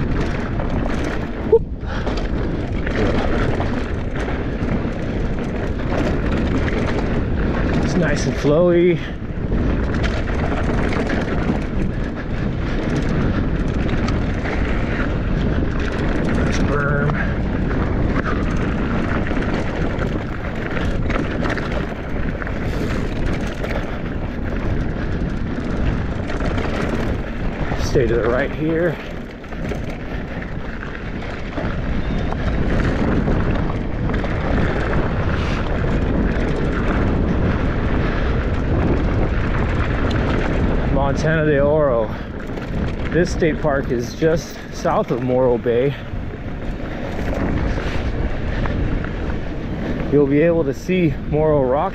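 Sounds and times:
bike clicks and rattles: 0.0s - 51.9s
bike tyres rolling on dirt trail: 0.0s - 51.9s
wind buffeting microphone: 0.0s - 51.9s.

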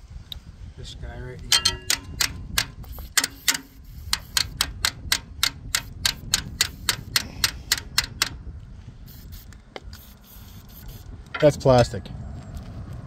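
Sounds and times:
hammer tapping on metal: 1.5s - 8.4s.

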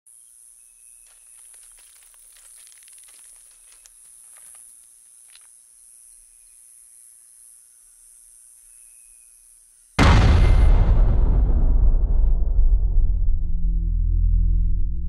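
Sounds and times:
dry crackles and clicks: 1.0s - 5.6s.

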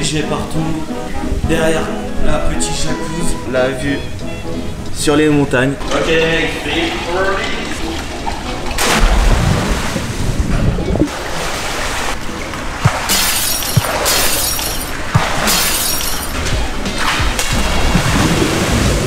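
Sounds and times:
water splashing from swimming: 5.8s - 19.0s
waves slapping pool edge: 5.8s - 19.0s.

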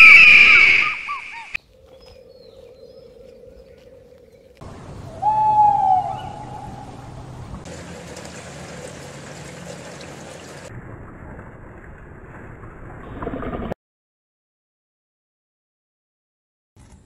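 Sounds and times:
owl call: 0.0s - 4.2s, 5.0s - 7.2s
water lapping: 6.0s - 10.7s.

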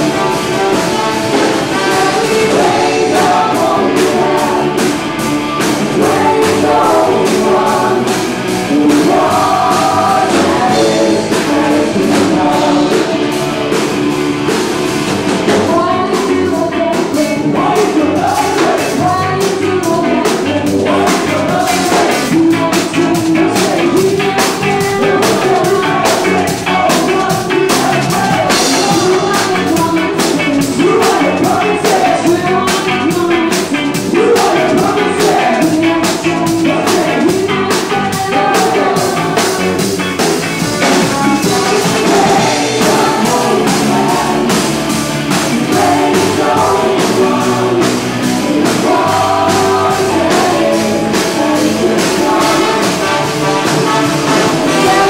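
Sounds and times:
drum beat: 0.0s - 55.0s
guitar: 0.0s - 55.0s
person singing: 0.0s - 55.0s
ska band playing live: 0.0s - 55.0s.

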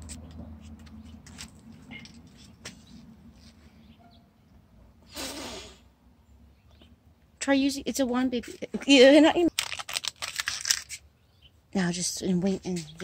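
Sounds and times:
child blowing a puff of breath: 5.1s - 5.9s.

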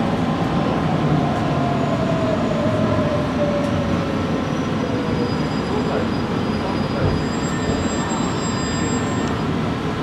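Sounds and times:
wheels rumbling on rails: 0.0s - 10.0s.

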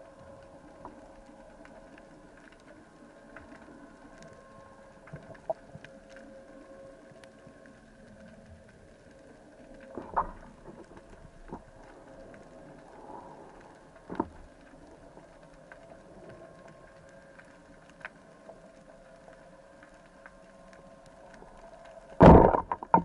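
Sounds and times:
underwater low hum: 0.0s - 23.0s.

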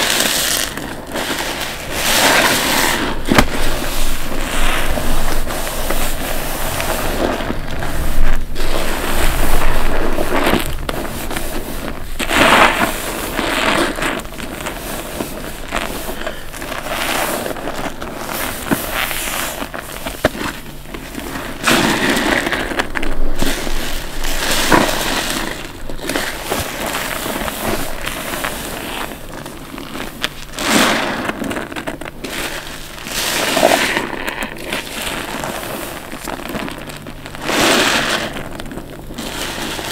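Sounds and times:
wet sponge squelching: 0.0s - 39.9s.

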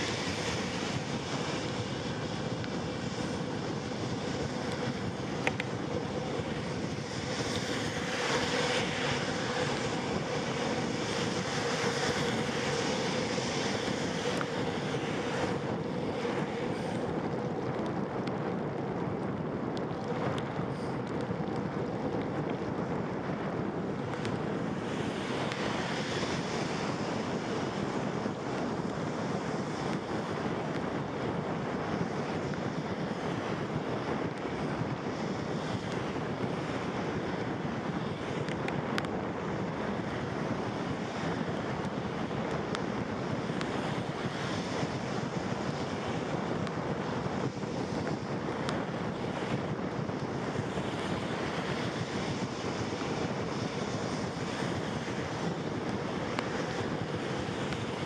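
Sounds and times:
rain hiss on wet road: 0.0s - 58.0s
wind buffeting microphone: 0.0s - 58.0s.

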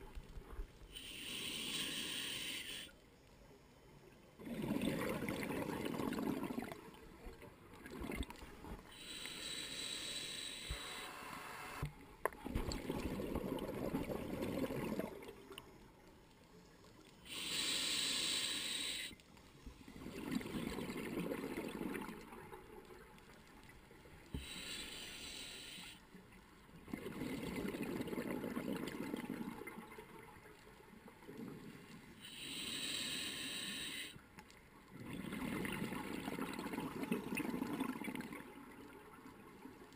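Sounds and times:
regulator hissing inhale: 0.9s - 3.0s, 8.9s - 11.8s, 17.2s - 19.3s, 24.3s - 26.1s, 32.2s - 34.3s.

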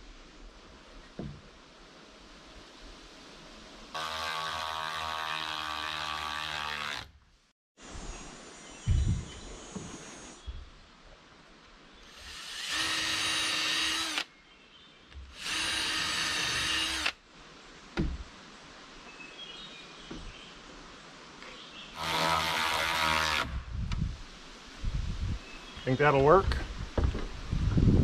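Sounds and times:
power drill running: 12.1s - 14.3s, 15.4s - 17.2s.

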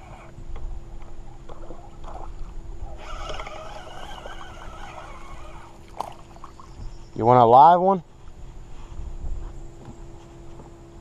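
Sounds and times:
wind rumble on microphone: 0.0s - 11.0s
spinning reel cranking: 3.0s - 5.8s.

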